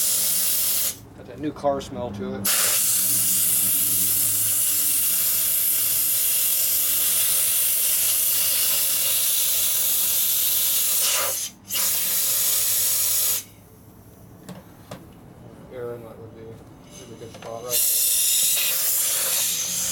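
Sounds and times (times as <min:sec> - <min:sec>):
compressed air hissing: 0:00.0 - 0:01.0, 0:02.4 - 0:13.5, 0:16.8 - 0:19.9.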